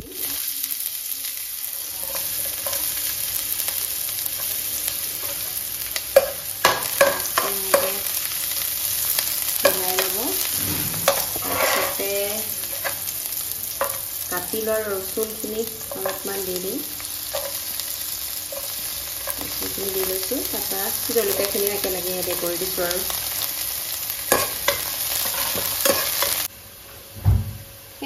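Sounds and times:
onions sizzling in hot oil: 0.0 - 26.8
metal spoon scraping a pan: 2.0 - 3.0, 9.6 - 13.1, 15.8 - 16.5, 17.3 - 17.7, 24.3 - 26.5.

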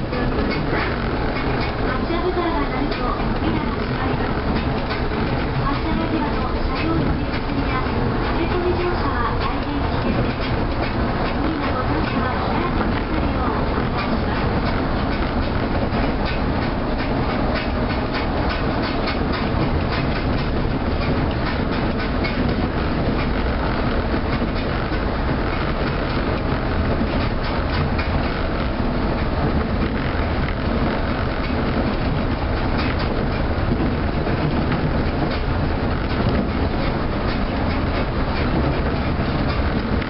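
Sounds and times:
tram running noise: 0.0 - 40.0
small clicks and rattles: 0.1 - 40.0.

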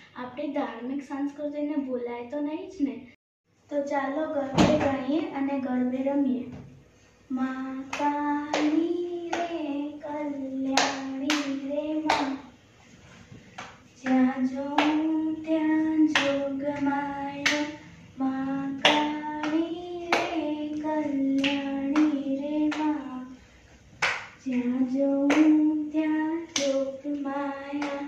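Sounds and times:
girl singing: 3.7 - 6.6, 7.3 - 12.6, 14.0 - 23.4, 24.4 - 28.0
hand clapping: 7.9 - 9.6, 10.7 - 12.4, 13.5 - 15.1, 15.9 - 17.8, 18.8 - 23.0, 24.0 - 25.6, 26.5 - 26.8, 27.6 - 28.0.

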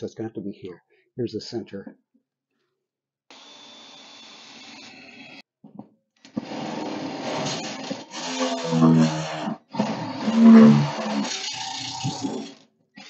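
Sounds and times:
step drill bit cutting steel: 3.3 - 5.4, 6.4 - 13.0
cordless drill whining through steel: 3.3 - 5.5, 6.3 - 13.0.

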